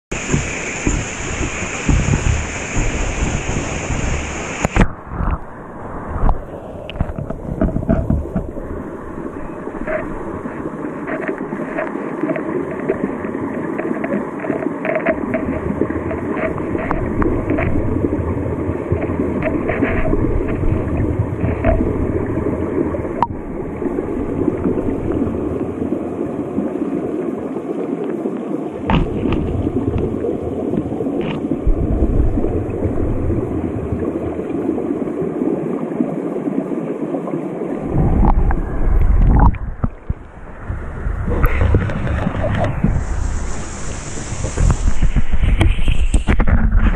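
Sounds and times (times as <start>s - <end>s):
underwater stream gurgling: 0.1s - 46.9s
low rumbling and sloshing: 28.9s - 35.2s, 37.7s - 46.9s.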